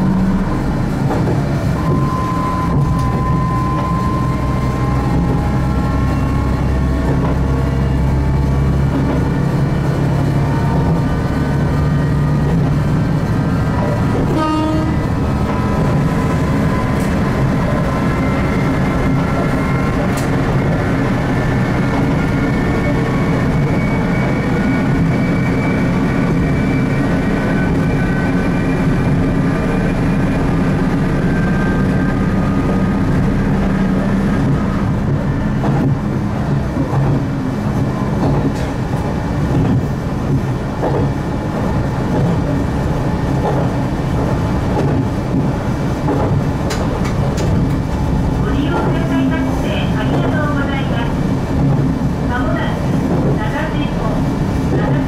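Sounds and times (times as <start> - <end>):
whining tones rising in pitch: 0.0 - 13.7
diesel railcar engine drone: 0.0 - 55.0.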